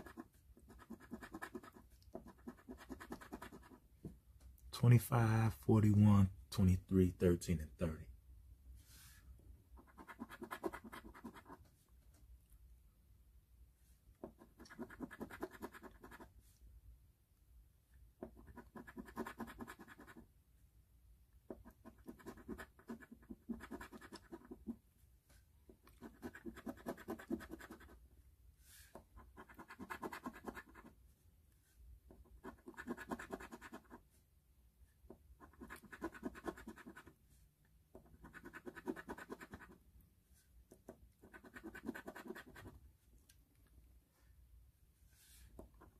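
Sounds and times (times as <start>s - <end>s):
scratching lottery ticket: 0.0s - 3.8s, 9.8s - 11.6s, 14.4s - 16.3s, 18.2s - 20.2s, 21.6s - 24.8s, 26.0s - 28.0s, 29.2s - 30.9s, 32.3s - 34.0s, 35.4s - 37.1s, 38.1s - 39.8s, 41.2s - 42.7s.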